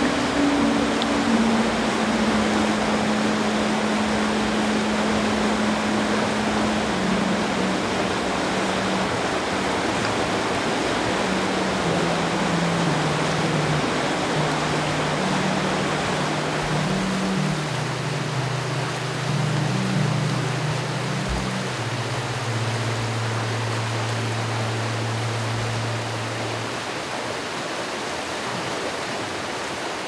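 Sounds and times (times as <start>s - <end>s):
slow music of low held notes: 0.0s - 29.1s
brook water rushing: 0.0s - 30.0s.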